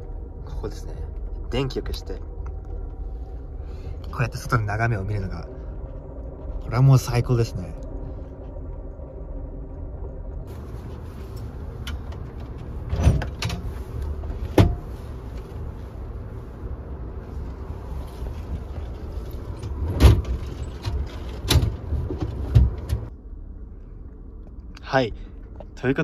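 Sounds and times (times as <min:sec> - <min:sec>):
train car low rumble: 0:00.0 - 0:26.0
seats knocking and clunking: 0:11.8 - 0:15.0, 0:19.4 - 0:23.1.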